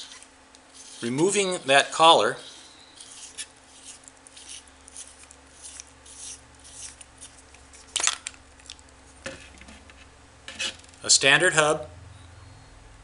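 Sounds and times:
metal rubbing and scraping: 0:00.0 - 0:08.0, 0:09.1 - 0:11.0.

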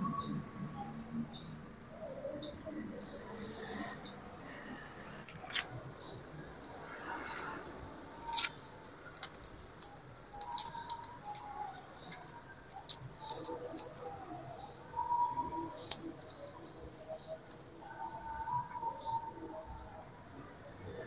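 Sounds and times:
tape crackling and clicking: 0:04.5 - 0:17.7.

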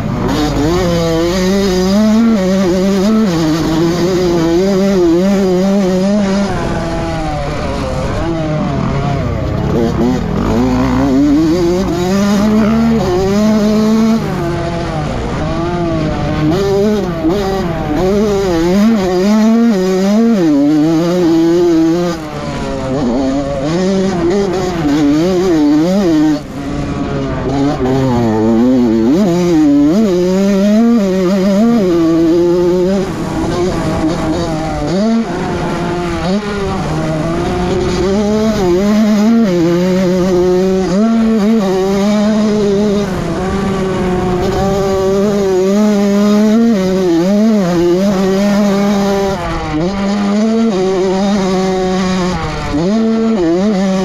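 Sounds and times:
motocross engine revving: 0:00.0 - 0:54.0.

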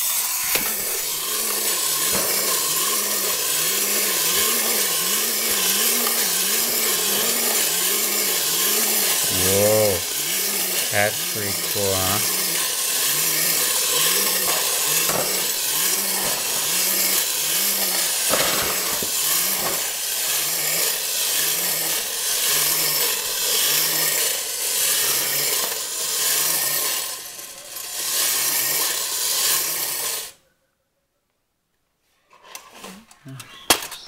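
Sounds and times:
clockwork toy grinding rasp: 0:00.0 - 0:30.4
toy low knocking gait: 0:00.6 - 0:19.8.

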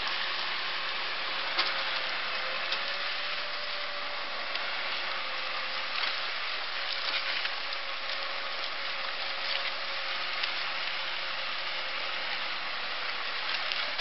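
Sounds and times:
tractor engine whine: 0:00.0 - 0:14.0.

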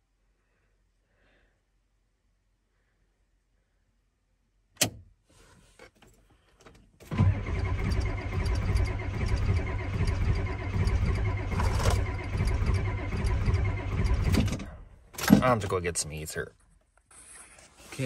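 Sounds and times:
starter whine: 0:07.0 - 0:15.4
diesel engine cranking: 0:07.0 - 0:15.7.

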